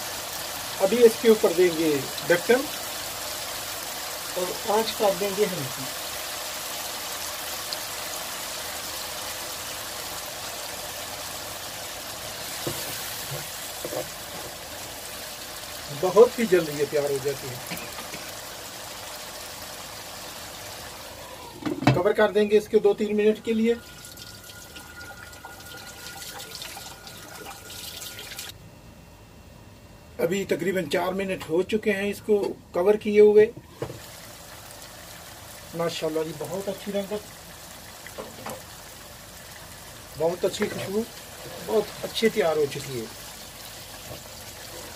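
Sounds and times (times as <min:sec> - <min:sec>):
chicken sizzling in a pan: 0:00.0 - 0:21.7, 0:33.7 - 0:44.9
gravy simmering in a pan: 0:34.0 - 0:44.9.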